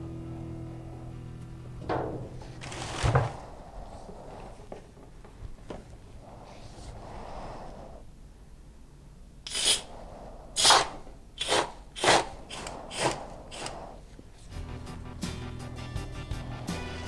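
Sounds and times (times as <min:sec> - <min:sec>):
spray foam gun hissing: 0:10.6 - 0:14.1.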